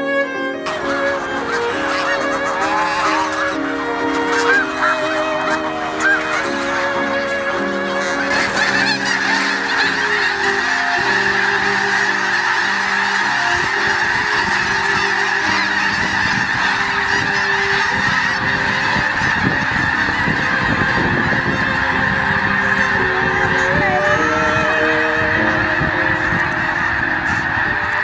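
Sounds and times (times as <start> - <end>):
geese honking in flight: 0.0 - 28.0.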